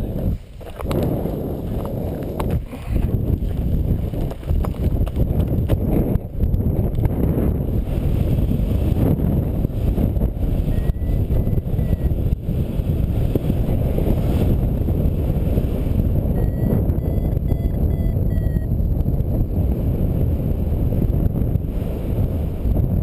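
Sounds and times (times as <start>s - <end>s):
wind rushing over microphone: 0.0s - 23.0s
variometer beeping short high tones: 10.7s - 12.2s, 16.4s - 18.7s.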